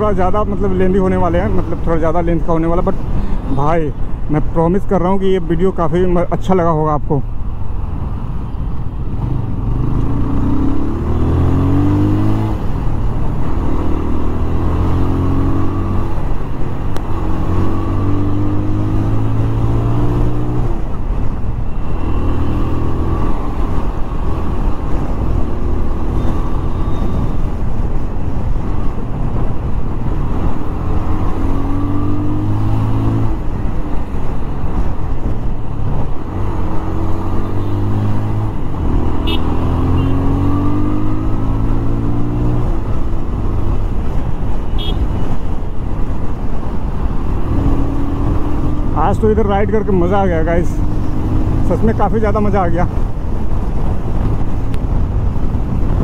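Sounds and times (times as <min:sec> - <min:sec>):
motorcycle engine revving: 0:09.2 - 0:21.0, 0:30.0 - 0:45.4, 0:46.7 - 0:56.0
wind on microphone: 0:52.7 - 0:56.0.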